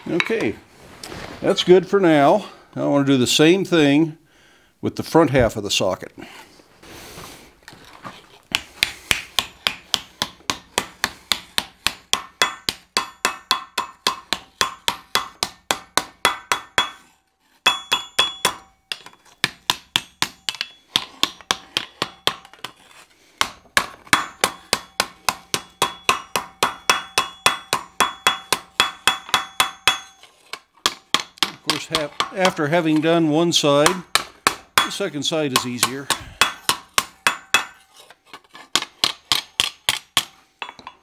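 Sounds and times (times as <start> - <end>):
hammer ringing on hot steel: 12.2 - 19.1, 24.2 - 30.3, 35.7 - 37.8.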